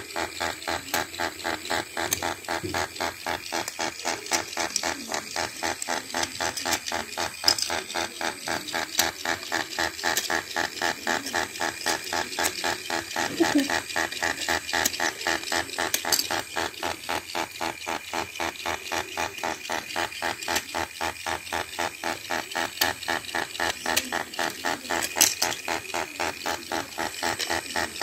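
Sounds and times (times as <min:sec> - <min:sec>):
toy motor gears clicking rattle: 0:00.0 - 0:28.0.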